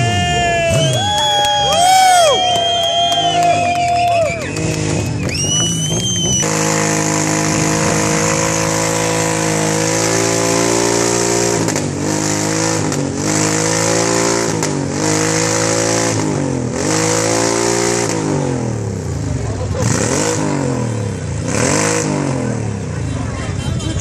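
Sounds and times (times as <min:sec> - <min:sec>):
motorcycle engine revving: 0:04.2 - 0:23.2.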